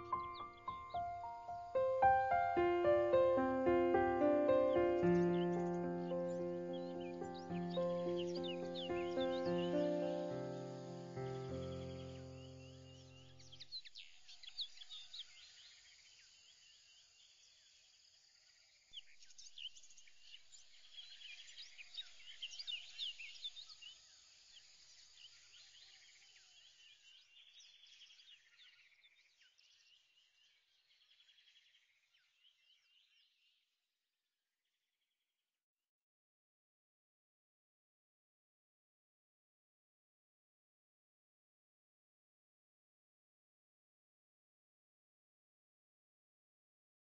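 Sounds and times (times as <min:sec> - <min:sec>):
small birds chirping: 0:00.0 - 0:17.8, 0:19.0 - 0:33.6.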